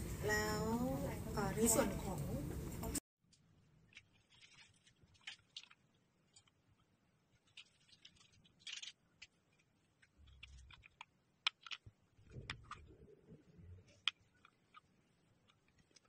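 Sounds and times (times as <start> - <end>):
plastic mouse clicks and taps: 10.7 - 11.8.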